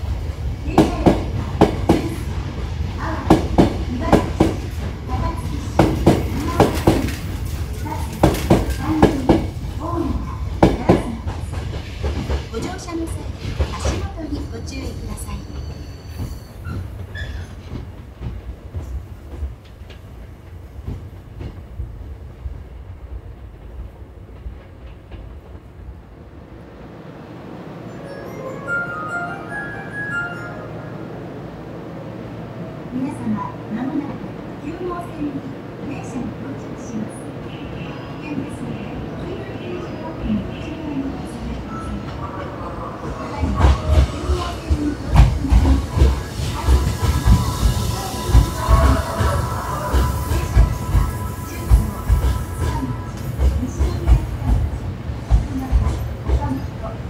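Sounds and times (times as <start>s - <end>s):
low train rumble: 0.0s - 57.0s
train wheels clacking over rail joints: 5.8s - 9.6s, 43.5s - 51.0s.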